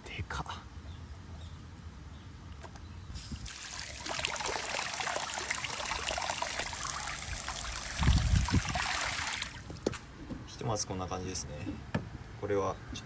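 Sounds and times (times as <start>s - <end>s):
tap water running and splashing: 3.2s - 10.0s.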